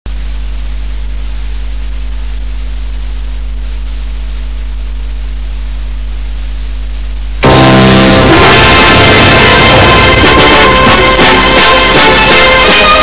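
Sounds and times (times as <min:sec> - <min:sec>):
low mains hum: 0:00.1 - 0:07.5
tape hiss: 0:00.1 - 0:13.0.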